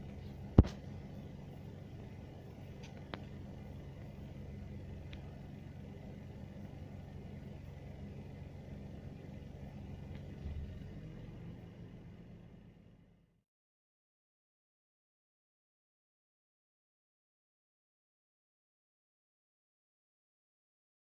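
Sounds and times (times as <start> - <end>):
vehicle engine humming: 0.0 - 13.4.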